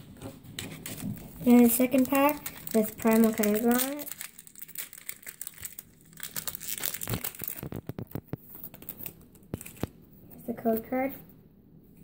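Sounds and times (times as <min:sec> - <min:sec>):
foil wrapper crinkling: 0:00.7 - 0:09.9
sharp crackles of foil: 0:00.8 - 0:09.9.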